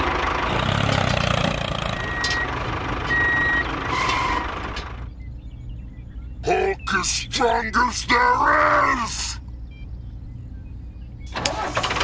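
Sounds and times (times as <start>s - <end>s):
reversing alarm beeps: 1.9s - 4.4s, 9.6s - 11.3s.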